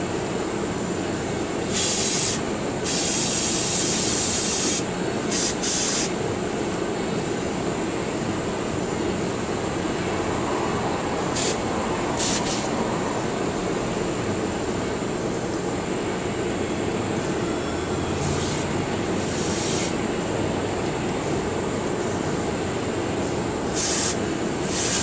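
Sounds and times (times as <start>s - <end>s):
aerosol spray bursts: 1.7s - 6.1s, 12.2s - 12.7s, 19.3s - 20.0s, 23.7s - 25.0s.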